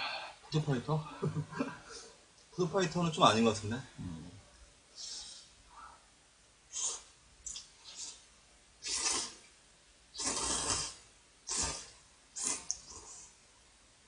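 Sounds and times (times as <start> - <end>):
person slurping noodles: 8.8 - 9.4, 10.2 - 13.3.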